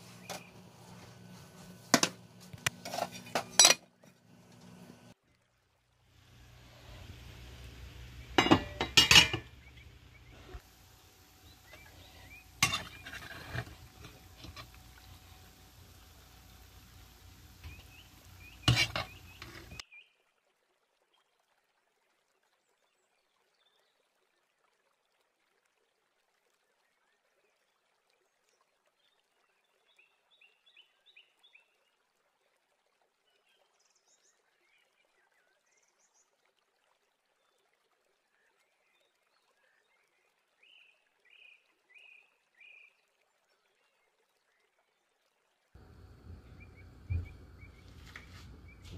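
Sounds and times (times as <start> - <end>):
steady hiss: 6.1 - 19.8, 45.8 - 48.9
spoon knocking on metal pot: 8.4 - 9.5
faint chirps: 45.8 - 48.9.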